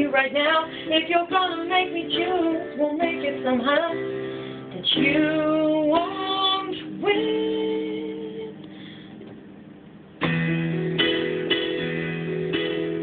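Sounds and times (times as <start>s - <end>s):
woman singing: 0.0s - 8.6s
digital piano chords: 0.0s - 13.0s.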